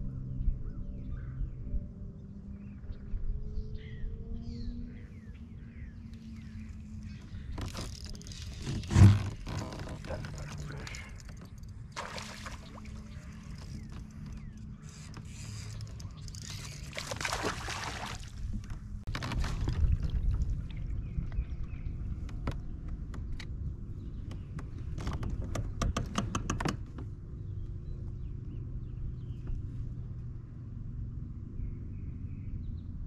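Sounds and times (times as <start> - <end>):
wind buffeting microphone: 17.2 - 29.7
sharp clicks and knocks: 24.2 - 27.1.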